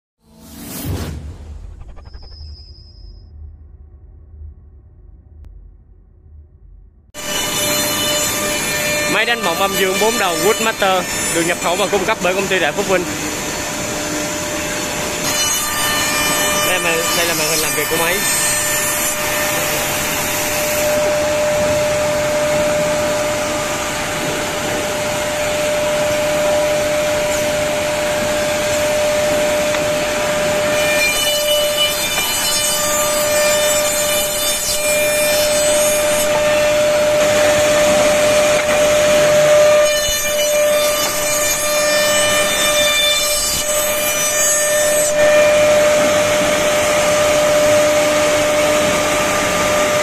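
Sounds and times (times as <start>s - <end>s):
cutting and dust extraction noise: 7.2s - 30.8s.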